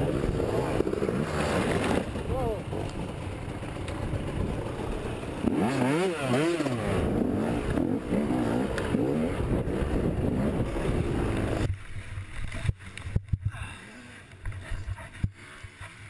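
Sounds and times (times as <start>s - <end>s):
dirt bike engine revving: 0.0s - 11.7s.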